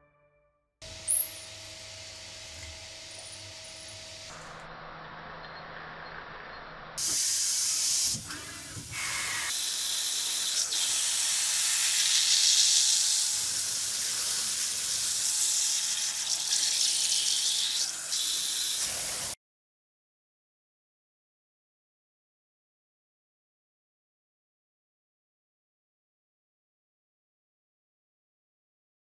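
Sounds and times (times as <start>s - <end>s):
coolant jets hissing: 7.0s - 19.4s.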